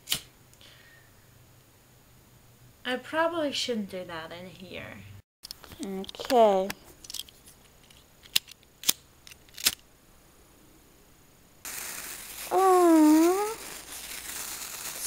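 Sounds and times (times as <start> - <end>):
sparkler fizzing: 11.6 - 15.0
person calling wordlessly: 12.5 - 13.7.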